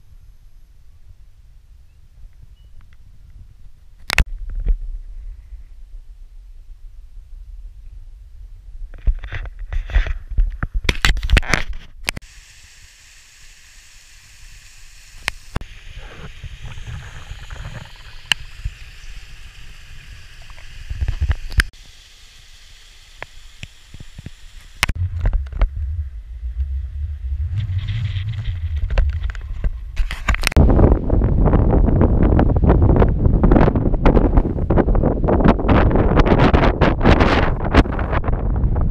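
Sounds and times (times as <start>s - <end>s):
camera handling clicks and rubbing: 9.0s - 12.2s
wind buffeting microphone: 25.0s - 38.9s.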